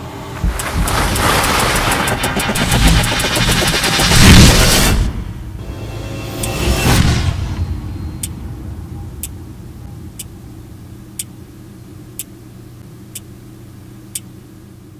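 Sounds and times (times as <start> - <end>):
steady low drone: 0.0 - 13.8
loud music hit: 1.2 - 11.2.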